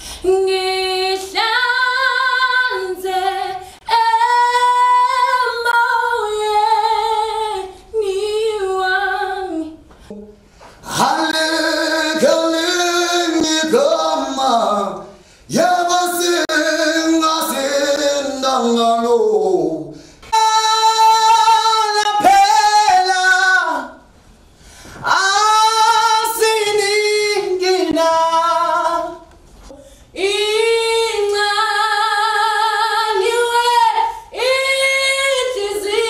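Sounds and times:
singer breathing: 0:00.0 - 0:00.3, 0:09.9 - 0:10.9, 0:15.1 - 0:15.5, 0:19.9 - 0:20.3, 0:24.4 - 0:25.1, 0:29.7 - 0:30.2.

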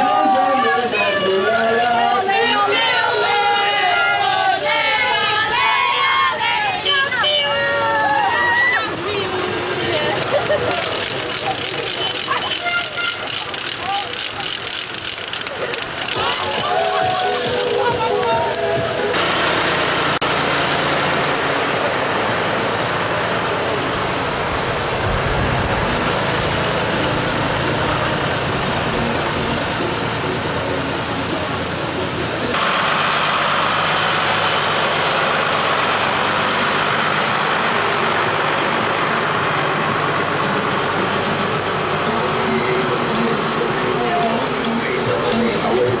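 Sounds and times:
street noise: 0:00.0 - 0:46.0
tractor diesel engine running: 0:00.0 - 0:46.0.

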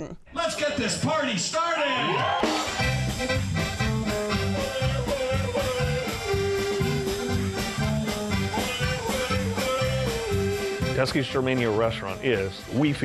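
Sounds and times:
upbeat band music: 0:00.4 - 0:13.0
accordion: 0:02.4 - 0:12.8
oom-pah bass beat: 0:02.5 - 0:13.0.

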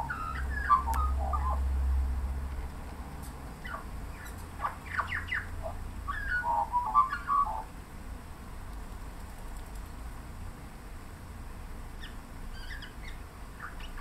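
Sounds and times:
magpie singing: 0:00.0 - 0:01.6, 0:03.6 - 0:07.7, 0:12.0 - 0:14.0.

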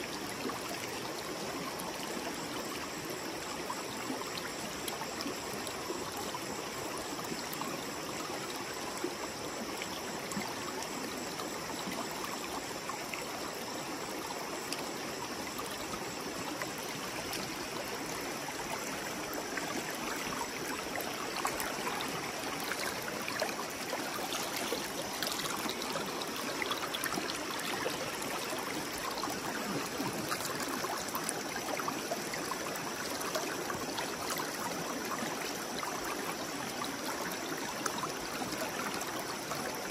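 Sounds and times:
river water rushing: 0:16.1 - 0:35.2.

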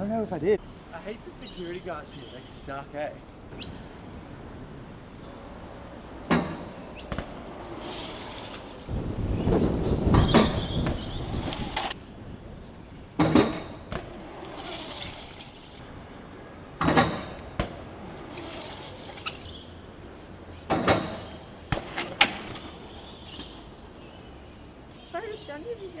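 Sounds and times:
bike impacts on concrete: 0:06.2 - 0:08.9, 0:13.2 - 0:15.7, 0:16.8 - 0:19.6, 0:20.6 - 0:23.6.

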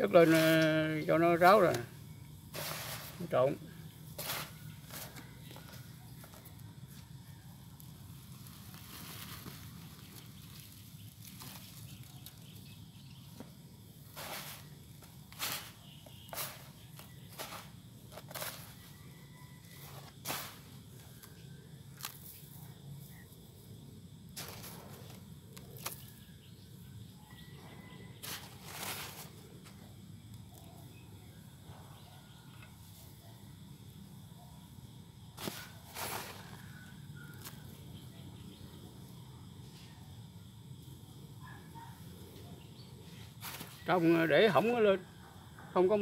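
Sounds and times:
hands rustling potting mix: 0:00.0 - 0:07.1, 0:07.8 - 0:19.0, 0:35.4 - 0:37.8, 0:43.2 - 0:44.6
scuffs and rustles on sand: 0:00.2 - 0:00.8, 0:02.5 - 0:03.4, 0:08.2 - 0:12.1
gritty scrape: 0:00.2 - 0:00.9, 0:02.5 - 0:03.5, 0:04.1 - 0:05.7, 0:14.1 - 0:18.9, 0:28.2 - 0:29.4, 0:35.4 - 0:36.7.

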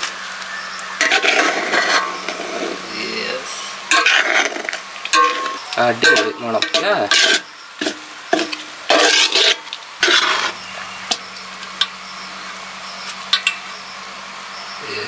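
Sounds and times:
low steady hum: 0:00.0 - 0:15.0
metal spoon scraping pot: 0:01.0 - 0:02.8, 0:03.9 - 0:04.6, 0:05.2 - 0:10.6
spoon clinking against pot: 0:05.1 - 0:07.3.

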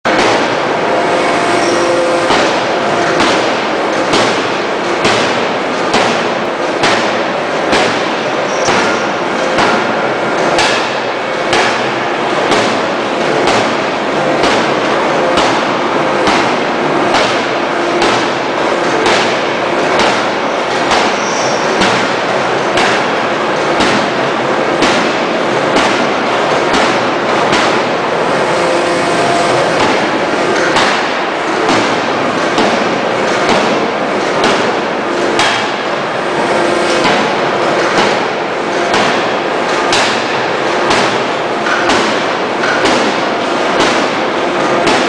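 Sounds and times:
continuous loud machine noise: 0:00.0 - 0:45.0
forging hammer striking metal: 0:01.2 - 0:08.0, 0:08.6 - 0:12.8, 0:25.8 - 0:33.8, 0:34.4 - 0:35.8, 0:36.7 - 0:43.2.

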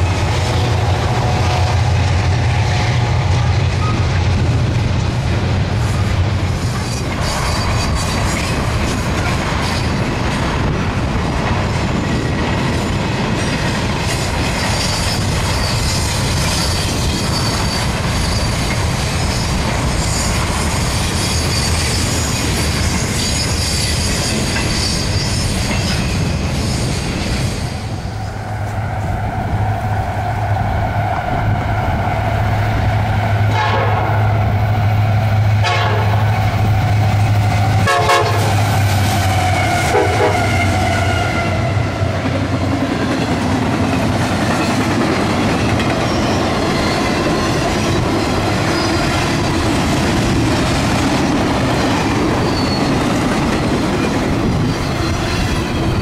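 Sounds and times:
locomotive engine drone: 0:00.0 - 0:14.5
train wheels rumbling on rails: 0:00.0 - 0:56.0
high wheel squeal: 0:06.6 - 0:08.6, 0:14.4 - 0:29.6, 0:45.8 - 0:49.6, 0:51.7 - 0:56.0
train horn chord: 0:33.5 - 0:34.2, 0:35.6 - 0:36.2, 0:37.8 - 0:38.6, 0:39.4 - 0:42.0.

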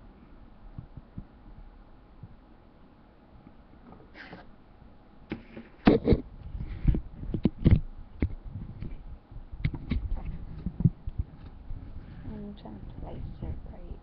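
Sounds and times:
handling knocks and scrapes: 0:03.8 - 0:04.5.

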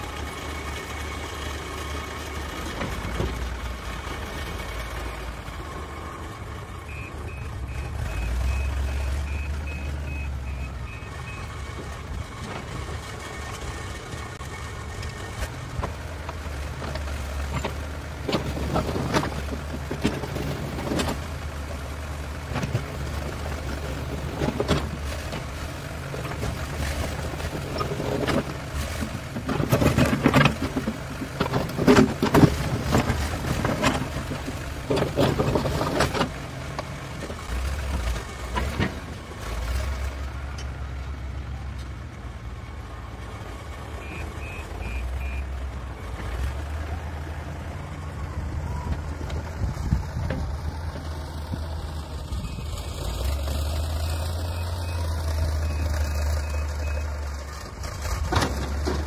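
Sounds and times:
diesel engine running: 0:00.0 - 0:59.0
backhoe bucket knocks and clatter: 0:27.4 - 0:36.9.

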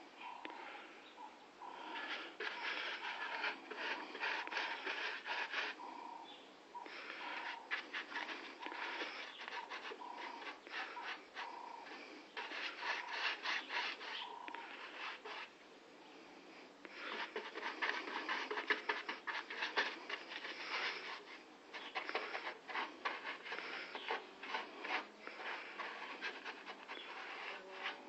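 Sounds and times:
hand sanding strokes: 0:01.9 - 0:05.8, 0:06.9 - 0:15.5, 0:17.0 - 0:28.0.

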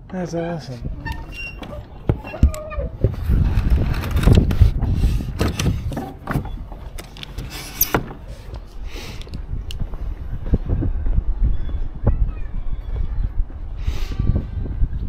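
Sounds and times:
high hinge squeak: 0:01.0 - 0:03.0.

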